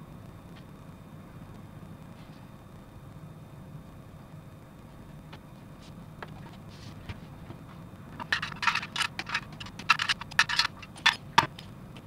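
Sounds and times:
plastic parts rattling in a box: 0:08.2 - 0:11.5.

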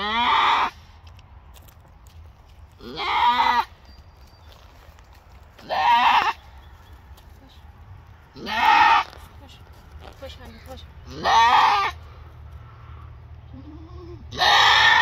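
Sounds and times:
goat bleating in labor: 0:00.0 - 0:00.7, 0:02.8 - 0:03.7, 0:05.6 - 0:06.4, 0:08.4 - 0:09.2, 0:11.0 - 0:12.0, 0:13.5 - 0:15.0.

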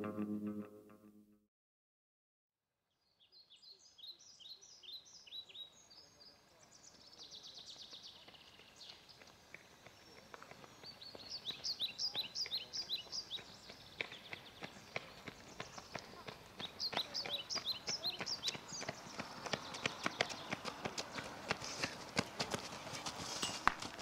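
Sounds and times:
small songbirds chirping: 0:03.0 - 0:22.0
running footsteps on asphalt: 0:07.8 - 0:24.0.

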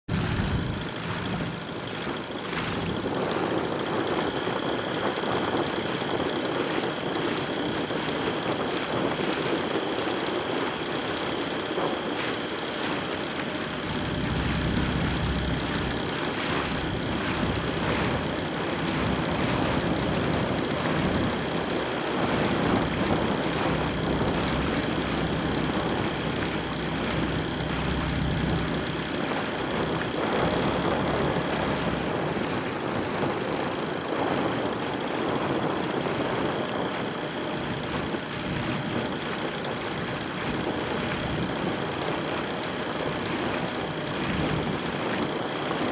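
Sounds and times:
motorboat engine hum: 0:00.0 - 0:45.9
water noise: 0:00.0 - 0:45.9
wind: 0:00.0 - 0:45.9
paddle strokes splashing: 0:00.1 - 0:45.9.

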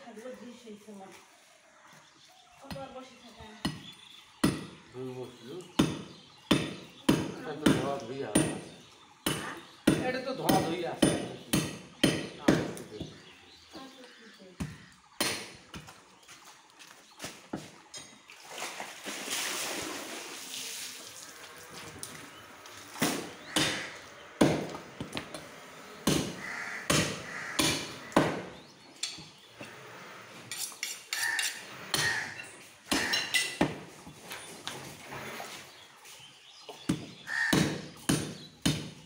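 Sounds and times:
cleaver chopping bone on wood: 0:03.6 - 0:04.8, 0:05.7 - 0:13.2, 0:14.6 - 0:15.9, 0:23.0 - 0:25.4, 0:26.0 - 0:28.6, 0:32.9 - 0:33.8, 0:36.8 - 0:39.0.

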